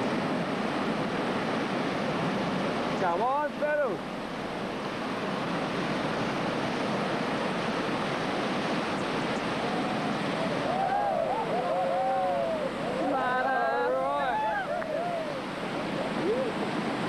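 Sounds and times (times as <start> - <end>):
whitewater rapids rushing: 0.0 - 17.0
people shouting and whooping: 9.8 - 16.7.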